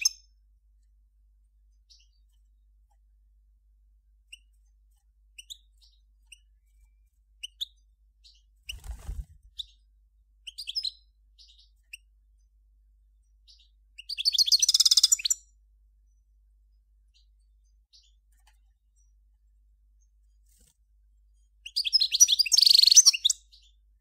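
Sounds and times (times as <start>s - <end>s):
goldfinch twittering: 14.0s - 15.4s, 21.6s - 23.6s
loud rapid bird trill: 14.0s - 15.4s.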